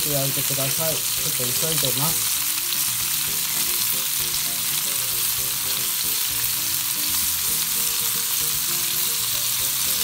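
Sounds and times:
food sizzling in a frying pan: 0.0s - 10.0s.

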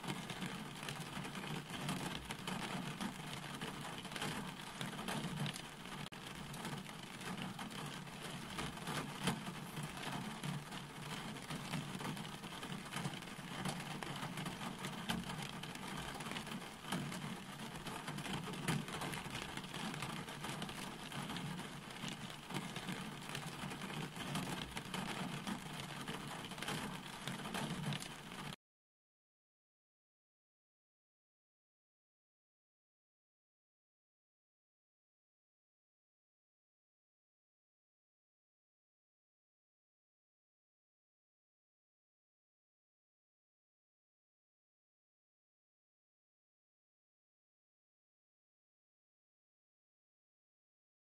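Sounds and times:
steady rain falling: 0.0s - 28.6s.

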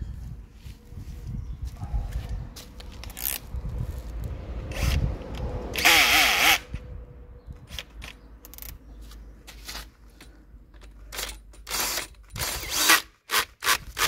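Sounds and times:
clicks and knocks of tools: 7.6s - 8.8s, 9.5s - 12.4s.

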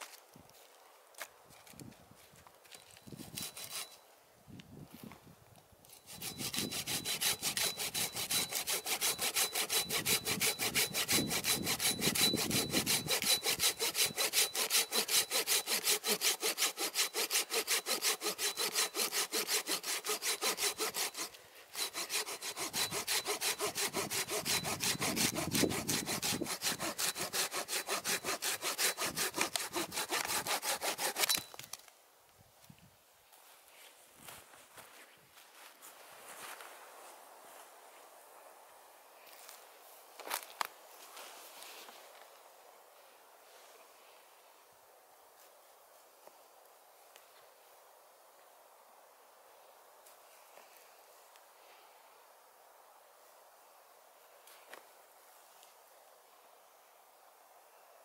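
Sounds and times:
hand saw cutting log: 3.2s - 4.0s, 5.9s - 31.5s.

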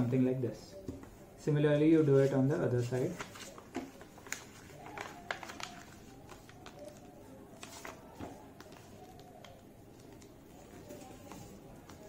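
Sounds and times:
paper rustling: 2.1s - 12.0s
paper crinkles: 2.8s - 12.0s.

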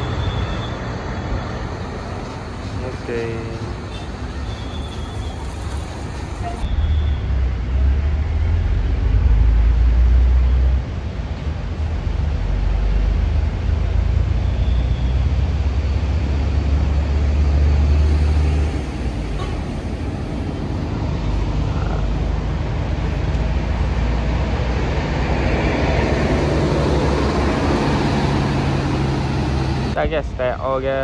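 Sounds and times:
bus diesel engine rumbling: 0.0s - 31.0s.

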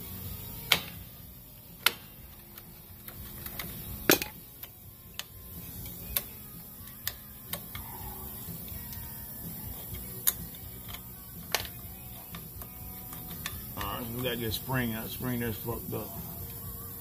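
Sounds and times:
metal pick clicking on brake springs: 1.8s - 7.9s, 9.7s - 14.1s.

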